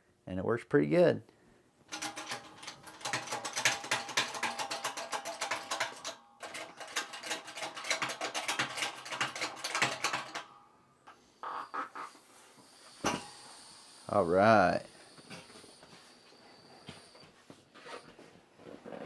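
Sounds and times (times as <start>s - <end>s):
shop press ratcheting clicks: 1.9s - 10.5s.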